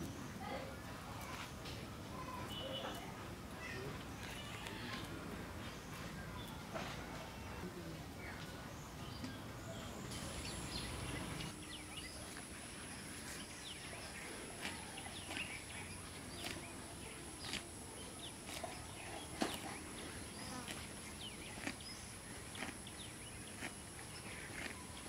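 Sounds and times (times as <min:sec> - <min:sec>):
birds chirping: 0:02.1 - 0:25.0.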